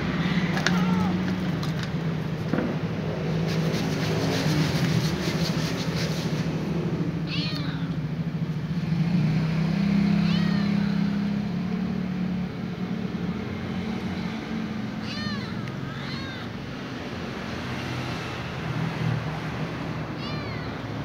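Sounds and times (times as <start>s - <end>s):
kitten meowing: 0.7s - 1.2s, 7.2s - 8.0s, 10.2s - 11.1s, 15.0s - 16.6s, 20.2s - 21.0s.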